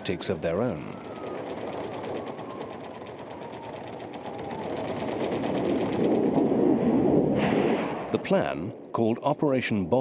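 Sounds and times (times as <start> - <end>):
rapid mechanical rattle: 1.0 - 6.5.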